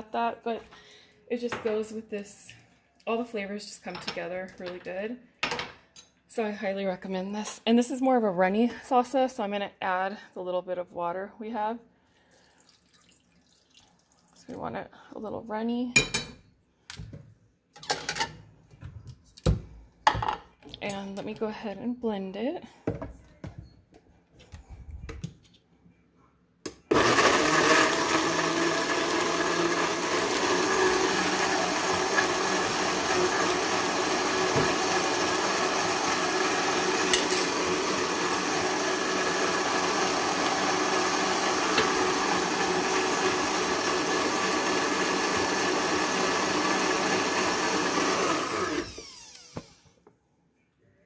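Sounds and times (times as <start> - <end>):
blender motor running: 26.9 - 49.9.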